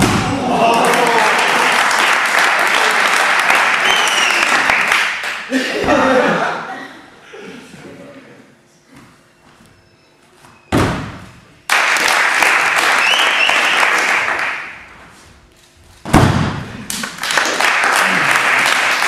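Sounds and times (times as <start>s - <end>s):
audience applause and cheering: 0.0s - 5.6s, 11.7s - 14.8s, 17.0s - 19.0s
body landing on crash mat: 10.7s - 11.4s, 16.0s - 16.7s.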